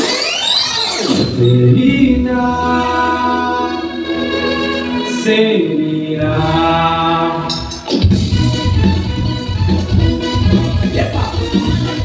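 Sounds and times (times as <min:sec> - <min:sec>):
low bass: 0:01.1 - 0:05.1, 0:06.1 - 0:12.0
song with sustained singing: 0:01.2 - 0:08.0.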